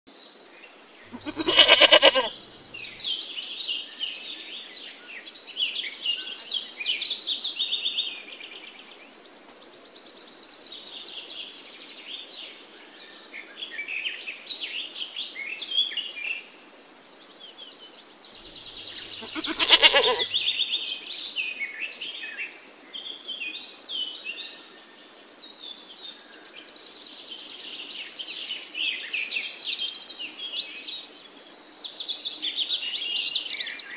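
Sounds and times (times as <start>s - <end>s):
goat bleating: 1.1s - 2.4s, 18.9s - 20.4s
birds chirping and singing: 1.2s - 3.0s, 18.4s - 20.5s.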